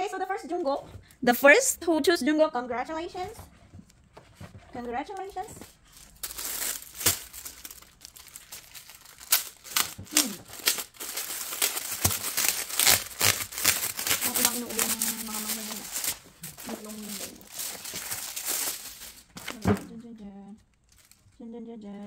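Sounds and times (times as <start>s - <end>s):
packaging torn and crinkled: 5.8s - 19.6s, 20.7s - 21.4s.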